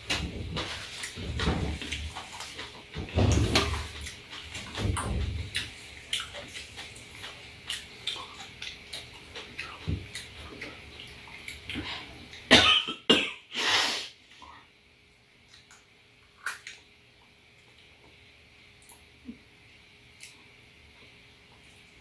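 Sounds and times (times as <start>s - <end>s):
wet chewing and lip-smacking: 5.4s - 12.5s
woman coughing: 12.5s - 13.5s.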